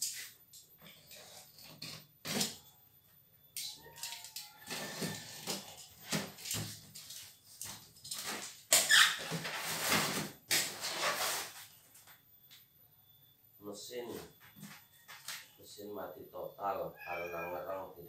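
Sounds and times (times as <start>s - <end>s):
packing tape ripping: 8.2s - 11.6s
cardboard flaps scraping: 9.2s - 11.8s.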